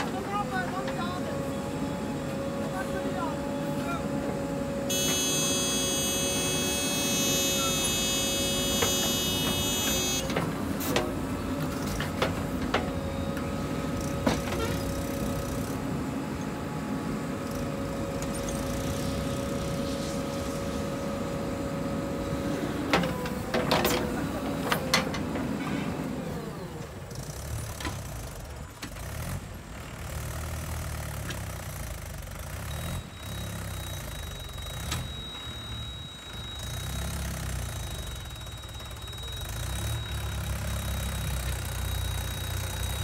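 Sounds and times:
diesel engine running under load: 0:00.0 - 0:43.0
high-pitched whine: 0:33.0 - 0:43.0.

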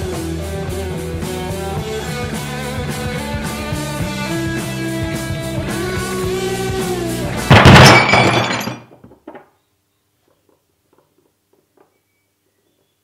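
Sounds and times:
rock guitar music: 0:00.0 - 0:07.5
loud ringing crash: 0:07.4 - 0:08.8.

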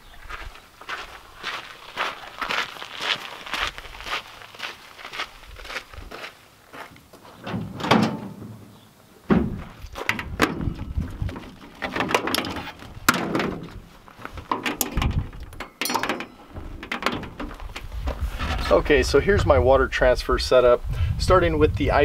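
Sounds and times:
thumps and knocks in truck bed: 0:09.3 - 0:13.8.

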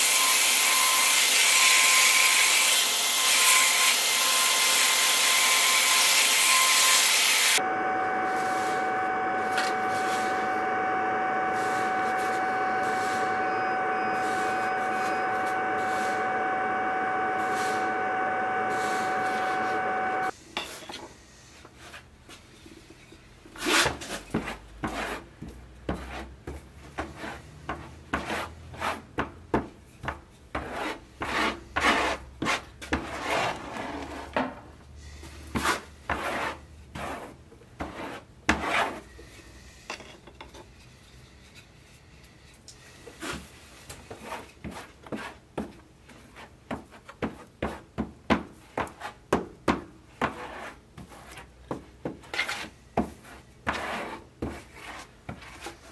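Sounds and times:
block scraping on wood: 0:23.6 - 0:26.3, 0:50.2 - 0:55.9.

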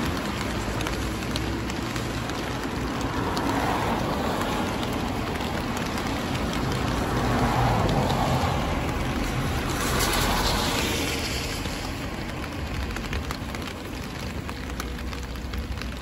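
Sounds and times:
heavy rain and wind: 0:00.0 - 0:16.0.

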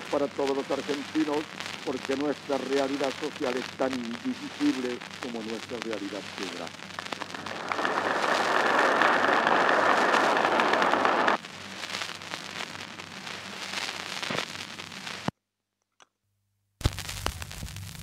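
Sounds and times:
old recording crackle and hiss: 0:00.0 - 0:15.3, 0:16.8 - 0:18.0
audience applause: 0:07.3 - 0:11.4.

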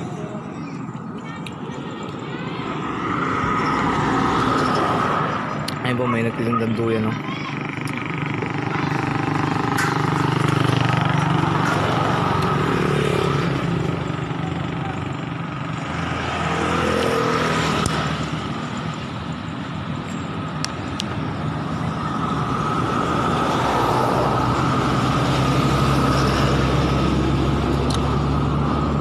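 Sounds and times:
road noise: 0:00.0 - 0:29.0
motorcycle engine running: 0:07.1 - 0:16.3.

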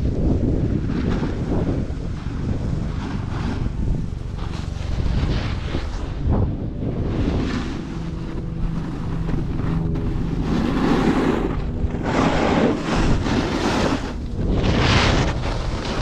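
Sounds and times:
wind buffeting microphone: 0:00.0 - 0:16.0
edges hissing over packed snow: 0:08.8 - 0:16.0.

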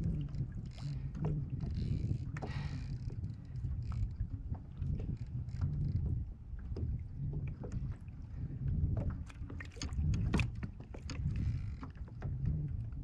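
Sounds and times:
water surging against hull: 0:00.0 - 0:13.0.

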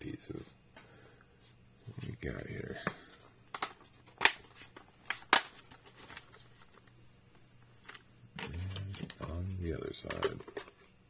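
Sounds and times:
plastic parts snapping together: 0:03.5 - 0:06.2
plastic rattling: 0:10.0 - 0:10.9.

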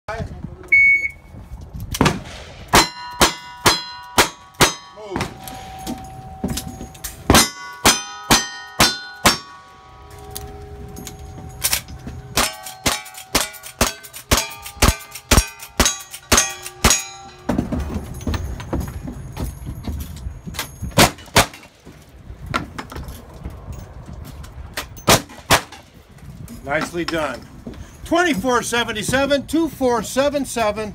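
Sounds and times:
steel targets ringing: 0:02.7 - 0:18.8.

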